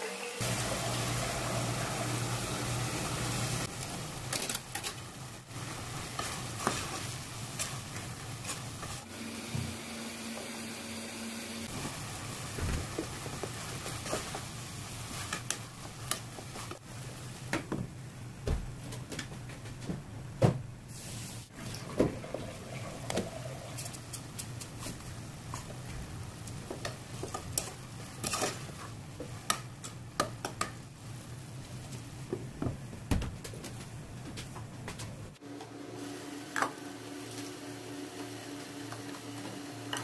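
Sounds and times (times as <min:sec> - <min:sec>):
sauce simmering and sizzling: 0:00.4 - 0:17.4.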